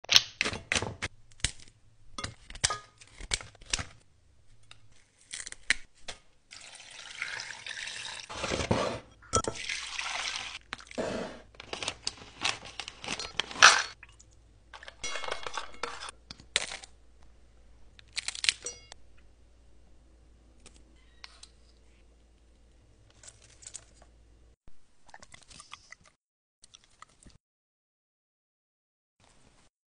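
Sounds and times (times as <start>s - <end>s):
liquid pouring and splashing: 6.5s - 8.3s, 9.4s - 11.0s.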